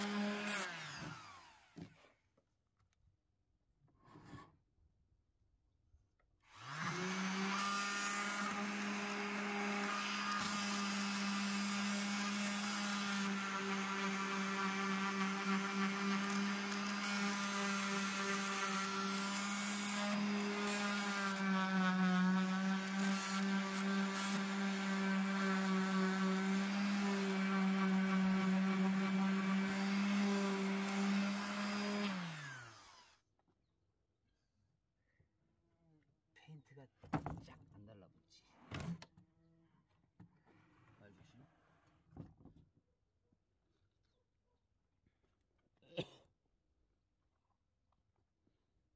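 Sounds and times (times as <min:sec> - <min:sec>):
orbital sander on wooden door: 0:00.0 - 0:02.0, 0:06.5 - 0:33.1.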